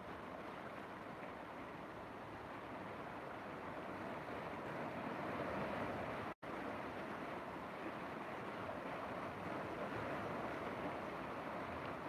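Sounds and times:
river water rushing and splashing: 0.0 - 12.0.

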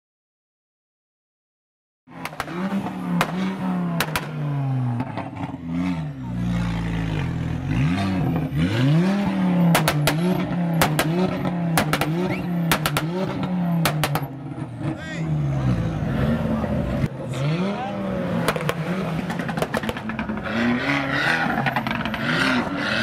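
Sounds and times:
exhaust pops and bangs: 2.1 - 4.4, 9.7 - 14.4, 18.4 - 20.5
car engine revving: 2.1 - 23.0.

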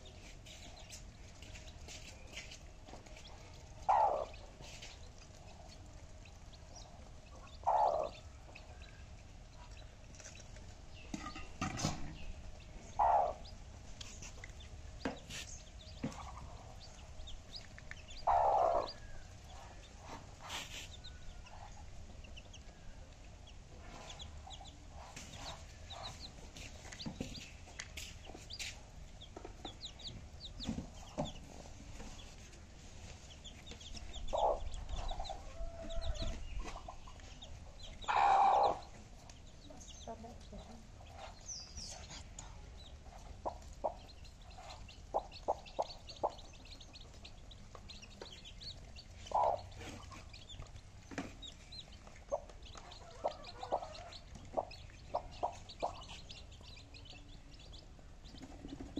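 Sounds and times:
baby chicks peeping: 0.0 - 58.9
chicken calls: 3.2 - 6.0, 6.8 - 8.9, 12.8 - 21.9, 33.6 - 57.3.

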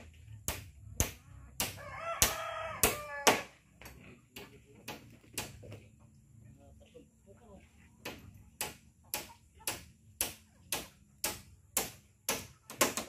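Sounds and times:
hammer striking wood: 0.0 - 5.8, 8.0 - 13.0
rooster crowing: 1.8 - 3.5.

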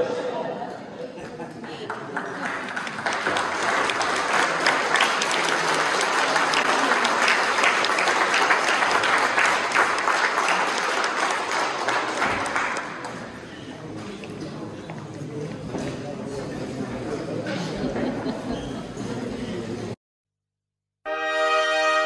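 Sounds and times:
audience applauding: 1.5 - 13.6.

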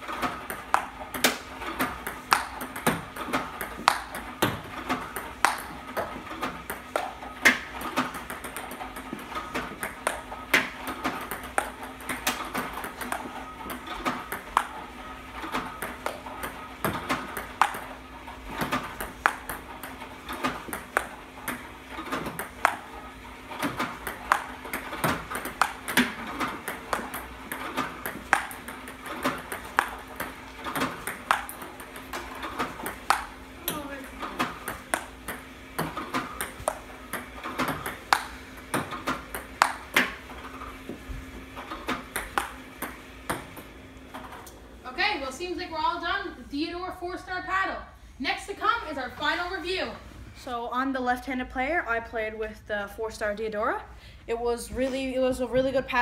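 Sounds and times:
table tennis balls bouncing: 0.0 - 44.6
table tennis balls hitting paddles: 0.0 - 44.6
faint steady hum: 0.0 - 56.0.

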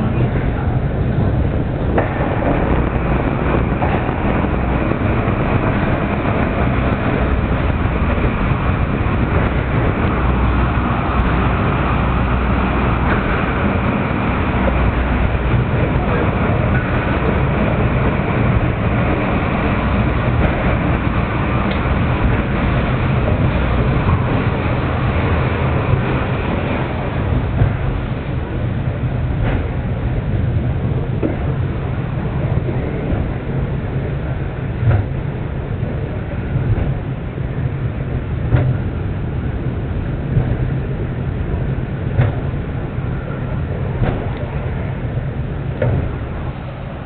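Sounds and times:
cable car rumbling on rails: 0.0 - 47.0.

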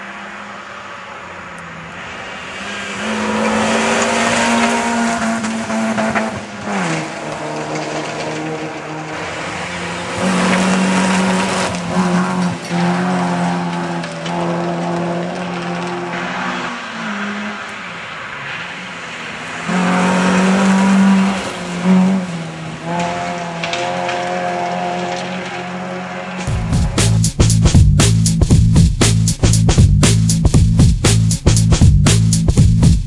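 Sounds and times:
rally car engines at speed: 0.0 - 28.6.

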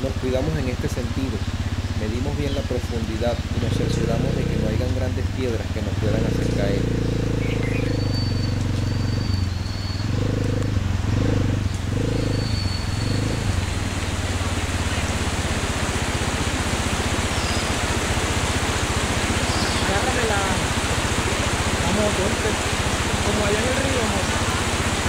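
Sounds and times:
motorcycle engine running: 0.0 - 25.0
steady rushing noise: 12.8 - 25.0.

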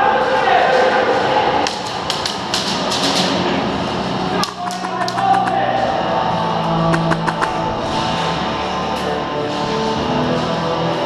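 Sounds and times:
sharp clicks: 4.4 - 5.6, 6.9 - 7.6.

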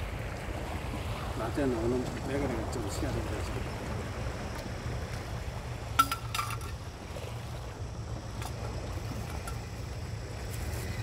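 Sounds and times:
wind rumble: 0.0 - 11.0
fishing gear clinking: 5.9 - 6.8, 8.3 - 9.8.

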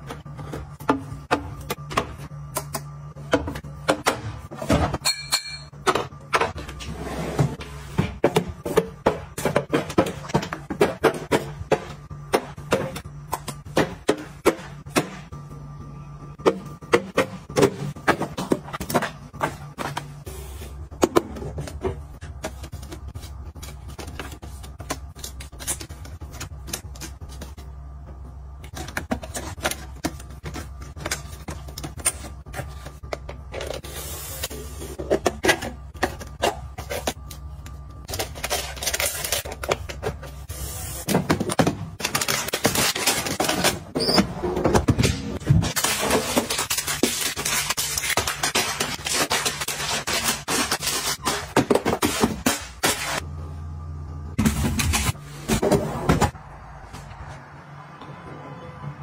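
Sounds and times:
low steady hum: 0.0 - 59.0
items scraping: 16.4 - 53.3.

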